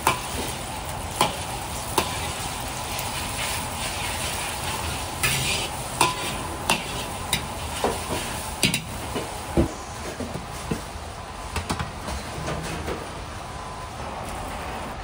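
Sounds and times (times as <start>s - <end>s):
egg sizzling in hot oil: 0.0s - 9.1s.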